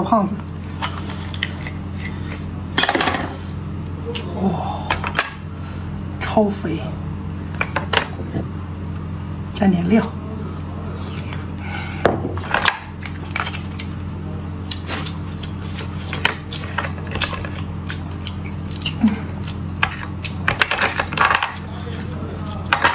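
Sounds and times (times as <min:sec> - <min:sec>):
steady low hum: 0:00.0 - 0:22.9
wet mouth clicks and chewing: 0:14.6 - 0:20.5.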